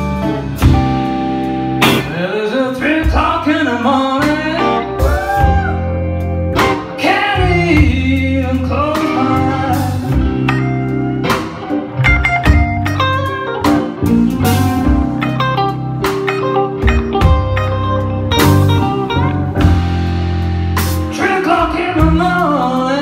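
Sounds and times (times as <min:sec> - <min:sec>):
blues band playing: 0:00.0 - 0:23.0
man singing: 0:02.0 - 0:05.9, 0:06.7 - 0:10.6, 0:21.0 - 0:23.0
drum hits: 0:16.1 - 0:21.2.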